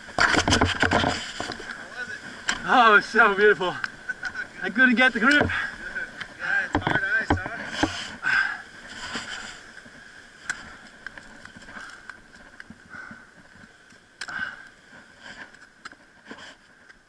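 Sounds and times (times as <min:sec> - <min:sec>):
ice climbing gear clicks and scrapes: 0:00.0 - 0:01.8, 0:06.2 - 0:08.2, 0:08.8 - 0:12.8, 0:15.0 - 0:17.0
faint steady hiss: 0:00.0 - 0:17.0.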